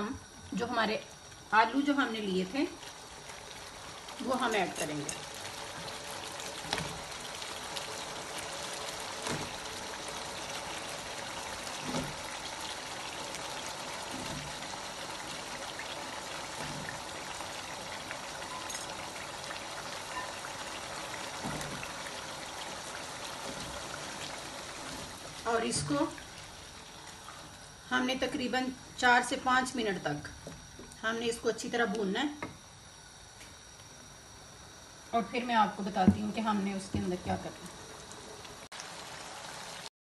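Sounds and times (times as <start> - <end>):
food sizzling in oil: 0.0 - 30.0, 35.8 - 39.9
knocks in a pan: 36.0 - 37.4.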